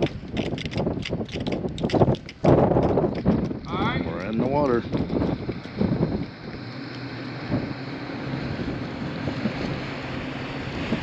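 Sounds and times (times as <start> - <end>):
wind buffeting microphone: 0.0 - 11.0
low steady engine hum: 3.1 - 11.0.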